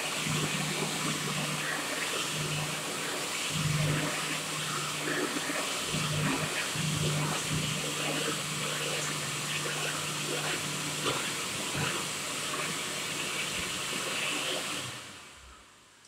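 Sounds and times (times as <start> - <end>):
hand dryer blowing air: 0.0 - 15.4.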